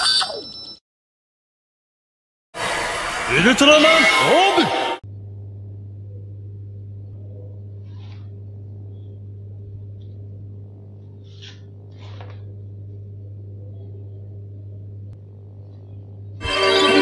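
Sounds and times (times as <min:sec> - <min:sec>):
low hum: 0:02.6 - 0:17.0
paper rustling: 0:11.2 - 0:12.4.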